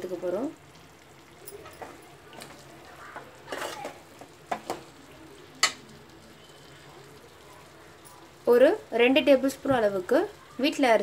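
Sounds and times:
faint sizzling: 0.0s - 11.0s
spoon scraping metal pan: 3.4s - 3.9s.

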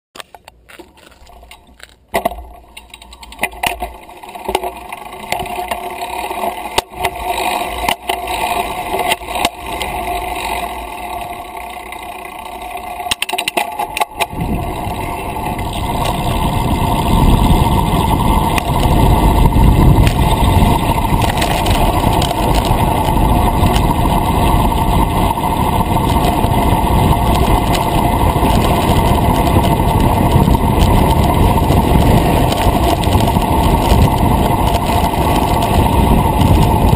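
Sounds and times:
bike knocks and rattles: 0.2s - 36.9s
tyre and road noise: 0.2s - 36.9s
wind buffeting microphone: 14.1s - 36.9s.

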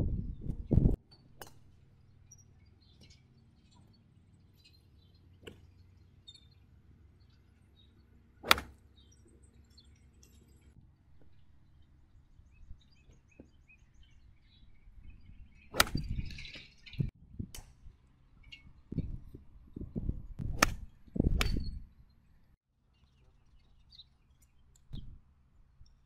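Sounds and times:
faint bird chirps: 1.1s - 8.2s
golf club striking ball: 8.4s - 8.8s, 15.7s - 16.2s, 20.4s - 21.7s.

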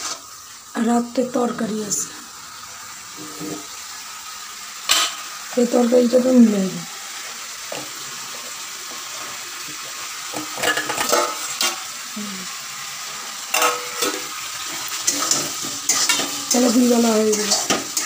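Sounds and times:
steady kitchen hiss: 0.0s - 18.0s
metal bowls and utensils clinking: 4.9s - 5.2s, 10.3s - 11.8s, 13.5s - 18.0s.

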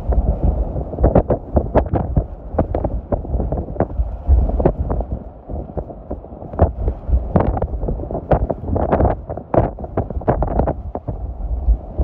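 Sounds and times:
wind buffeting a vehicle: 0.0s - 12.0s.

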